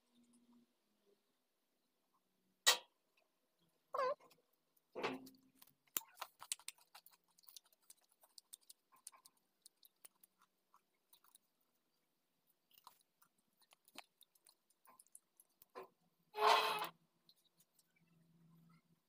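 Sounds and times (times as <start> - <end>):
faint plastic clicks and crackles: 4.2 - 16.0.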